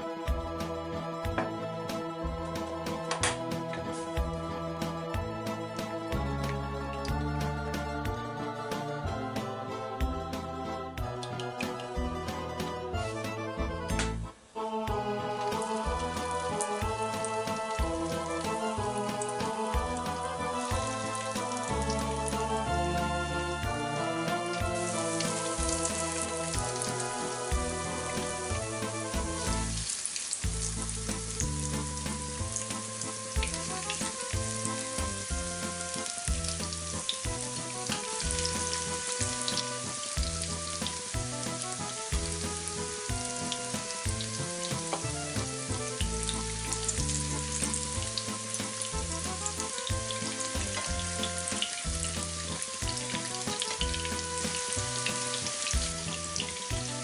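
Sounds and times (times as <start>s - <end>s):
background music: 0.0s - 57.0s
food frying in hot oil: 15.5s - 23.1s, 24.3s - 57.0s.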